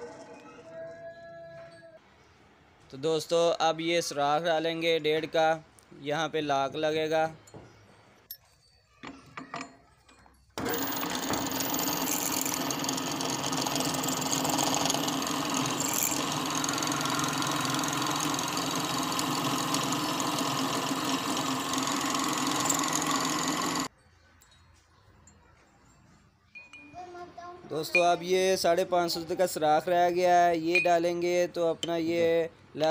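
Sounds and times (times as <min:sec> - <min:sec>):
drill press cutting metal: 0:10.6 - 0:23.9.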